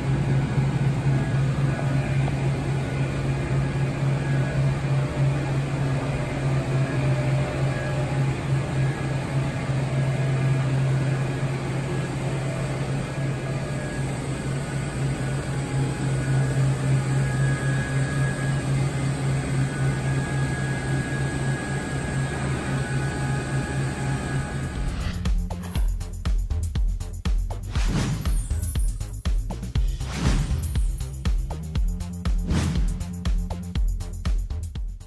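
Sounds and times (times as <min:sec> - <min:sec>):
high machine whines: 0:00.0 - 0:25.8
machine low hum: 0:00.0 - 0:25.9.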